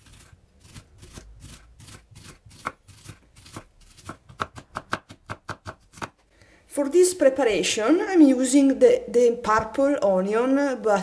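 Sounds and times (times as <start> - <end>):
knife slicing onion on wooden board: 0.0 - 6.2.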